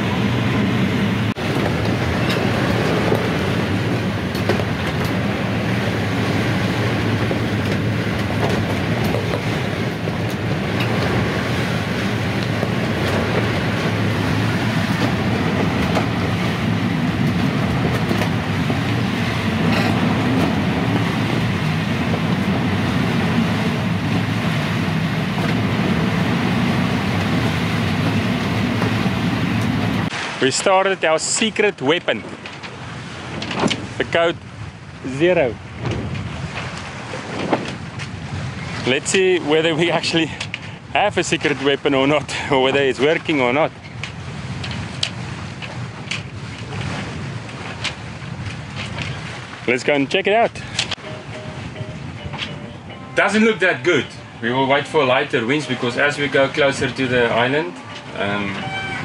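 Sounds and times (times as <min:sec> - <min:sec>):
heavy low rumble: 0:00.0 - 0:30.1, 0:50.6 - 0:59.0
wind rushing: 0:00.0 - 0:30.3
water rushing: 0:00.0 - 0:59.0.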